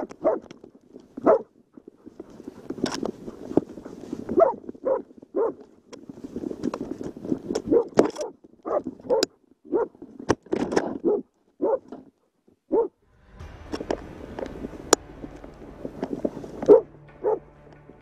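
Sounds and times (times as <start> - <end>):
dog barking: 0.0 - 0.5, 1.2 - 1.5, 4.3 - 5.6, 7.6 - 10.0, 11.0 - 12.0, 12.7 - 13.0, 16.7 - 17.4
rustling through brush: 0.0 - 11.6, 13.0 - 18.0.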